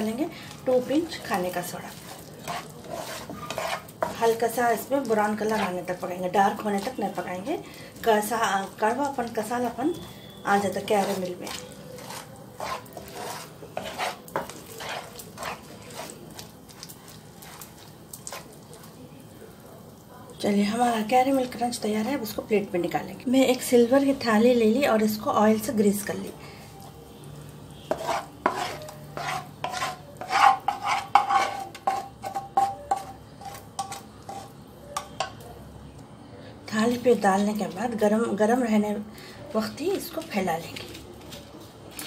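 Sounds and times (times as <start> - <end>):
wooden spatula scraping pan: 0.3 - 7.1, 10.0 - 18.6, 27.8 - 35.2.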